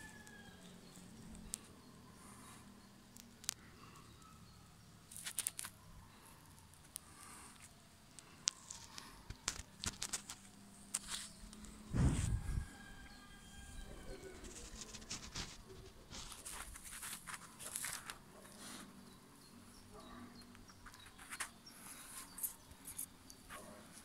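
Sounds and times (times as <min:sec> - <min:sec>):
rustling and brushing near microphone: 0:09.8 - 0:12.8, 0:14.0 - 0:18.9.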